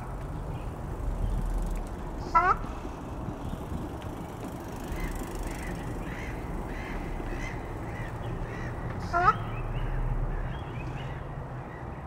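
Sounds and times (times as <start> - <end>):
low background rumble: 0.0 - 11.9
duck honking: 2.3 - 2.6, 9.0 - 9.5.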